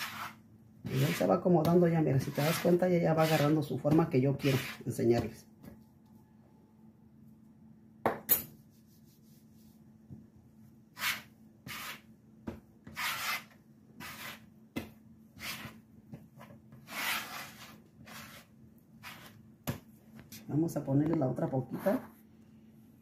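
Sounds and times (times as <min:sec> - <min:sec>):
hands kneading dough on board: 0:00.0 - 0:05.8, 0:11.0 - 0:20.0.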